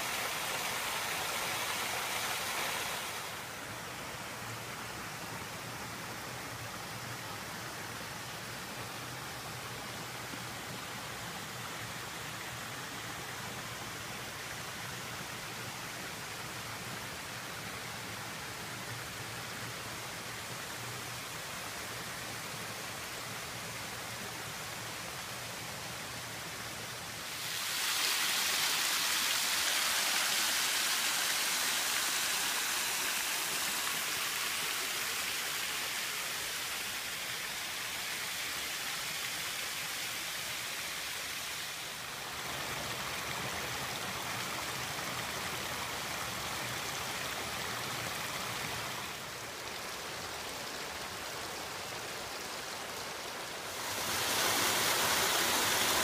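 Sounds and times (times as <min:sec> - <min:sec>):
river water rushing over rocks: 0:00.0 - 0:56.0.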